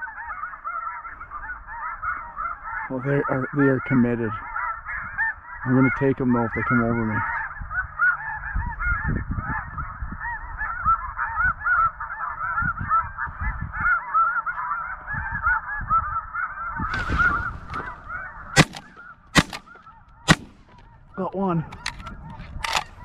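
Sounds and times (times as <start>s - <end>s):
geese calling: 0.0s - 23.0s
shotgun firing: 18.6s - 20.8s.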